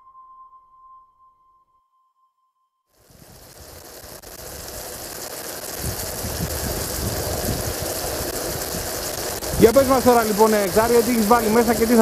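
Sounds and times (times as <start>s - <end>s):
mushrooms sizzling in a pan: 3.0s - 12.0s.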